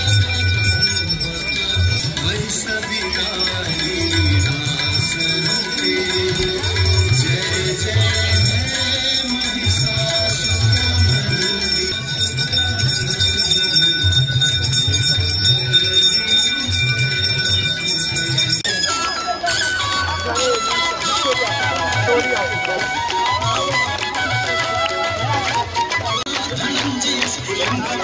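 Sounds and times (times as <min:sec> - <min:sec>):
brass hand bells ringing: 0:00.0 - 0:21.0.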